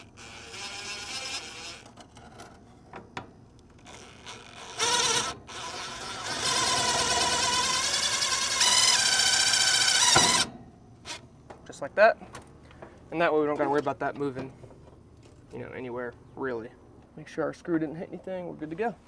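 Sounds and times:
cordless drill driving screw: 0.0s - 1.9s, 3.9s - 10.5s.

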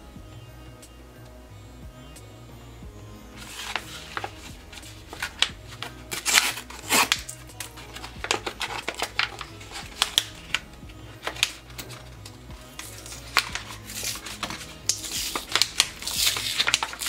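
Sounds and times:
plastic pouch crinkling: 3.4s - 10.6s, 11.2s - 17.0s.

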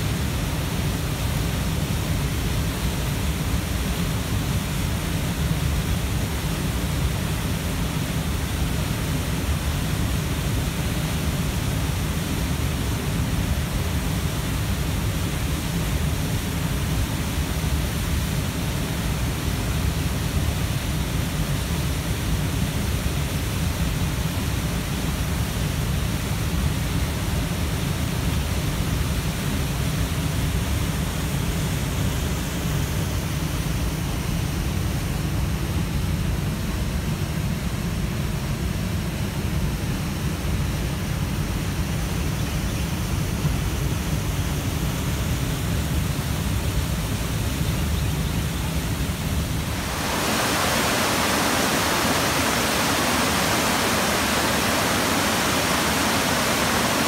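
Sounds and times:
waterfall rushing: 48.5s - 57.0s.

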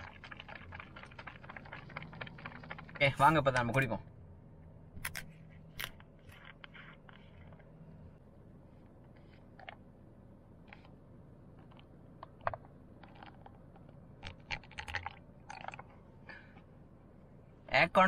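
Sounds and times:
milk pouring into cup: 0.0s - 3.2s, 14.2s - 15.9s.

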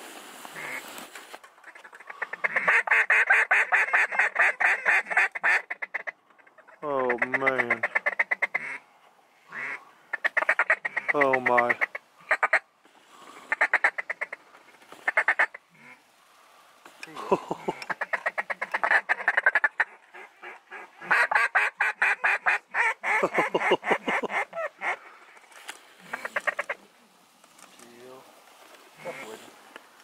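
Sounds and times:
duck call quacks and chatter: 1.6s - 8.8s, 9.5s - 12.6s, 13.5s - 14.4s, 17.7s - 25.1s, 26.0s - 26.9s, 29.0s - 29.4s.

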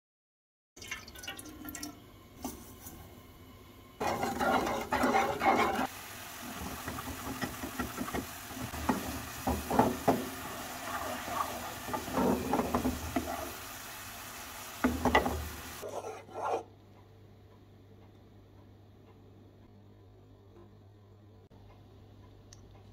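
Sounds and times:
wooden spoon scraping saucepan: 4.0s - 5.9s, 6.6s - 13.6s, 15.1s - 16.7s
bubbling syrup hissing: 4.0s - 15.8s.

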